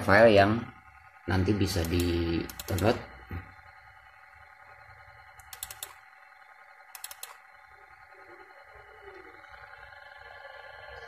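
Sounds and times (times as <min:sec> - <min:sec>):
faint electronic hum: 0:00.0 - 0:11.0
computer mouse clicking: 0:01.8 - 0:03.0, 0:05.4 - 0:06.0, 0:06.9 - 0:07.4.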